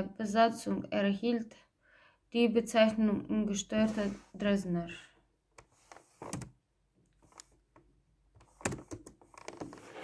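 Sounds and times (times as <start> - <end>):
handling clicks and soft knocks: 5.5 - 9.8.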